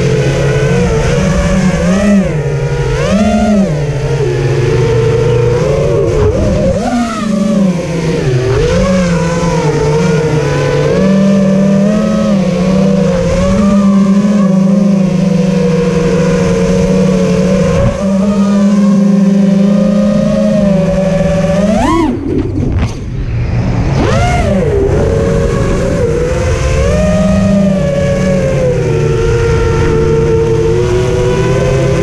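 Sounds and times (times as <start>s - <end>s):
quadcopter motors buzzing: 0.0s - 32.0s.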